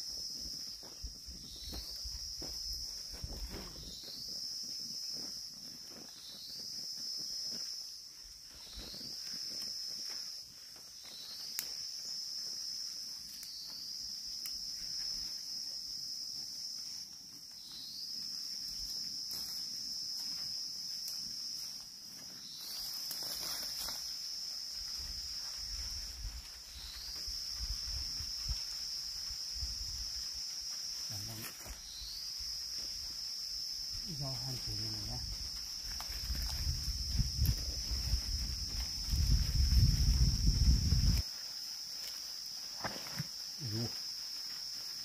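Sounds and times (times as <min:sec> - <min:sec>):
high-pitched insect drone: 0:00.0 - 0:45.0.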